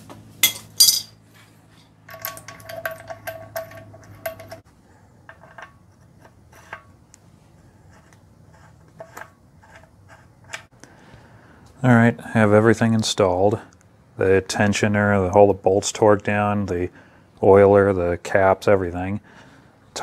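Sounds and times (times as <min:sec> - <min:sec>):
metal socket and bolts clinking: 0:00.4 - 0:01.2, 0:02.1 - 0:04.6.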